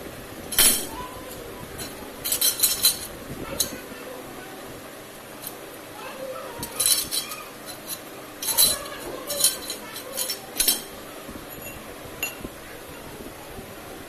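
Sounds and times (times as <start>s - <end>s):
metal pipes clinking: 0.5s - 3.8s, 5.4s - 5.7s, 6.6s - 12.5s.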